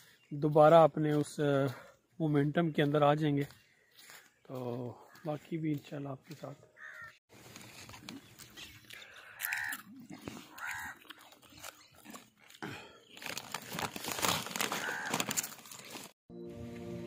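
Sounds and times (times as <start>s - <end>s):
crow cawing: 5.0s - 5.4s, 6.8s - 7.2s, 9.1s - 11.1s, 14.6s - 15.6s
plastic packets and shells crackling: 7.4s - 16.2s.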